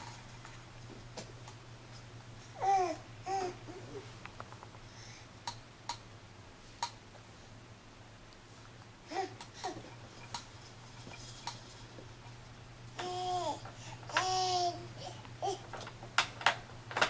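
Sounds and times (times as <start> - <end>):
steady low hum: 0.0 - 17.0
infant babbling: 2.6 - 4.0, 14.2 - 15.6.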